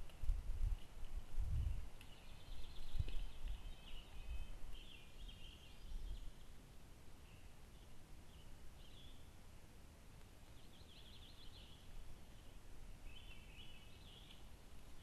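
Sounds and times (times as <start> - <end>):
small bird chirping: 1.5 - 6.6, 10.4 - 15.0.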